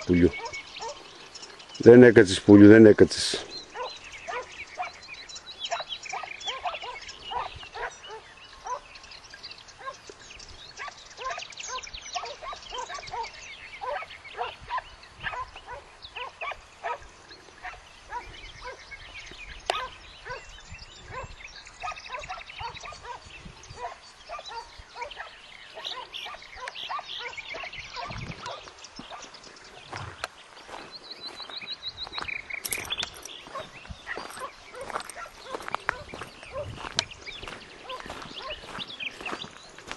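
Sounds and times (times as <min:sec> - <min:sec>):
hounds baying: 0:00.0 - 0:01.3, 0:03.5 - 0:09.0, 0:09.8 - 0:10.1, 0:10.8 - 0:18.9, 0:19.7 - 0:29.3, 0:32.7 - 0:39.5.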